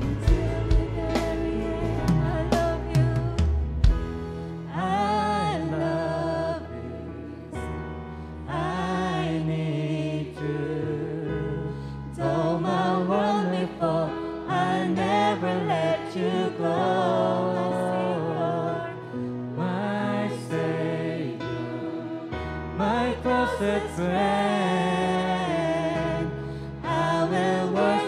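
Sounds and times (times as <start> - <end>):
voices singing: 0.0 - 3.7, 8.5 - 28.0
acoustic guitar: 0.0 - 5.8
bass: 0.0 - 28.0
keyboard: 0.0 - 28.0.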